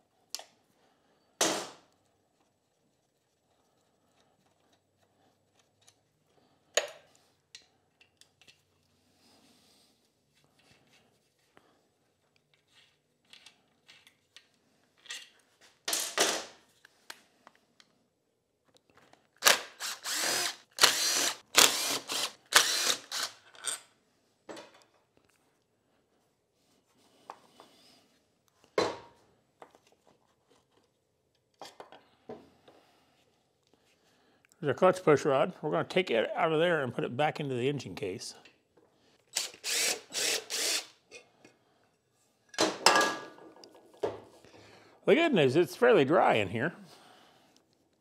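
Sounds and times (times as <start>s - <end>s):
cordless drill spinning screws: 19.4s - 23.5s, 39.3s - 41.0s.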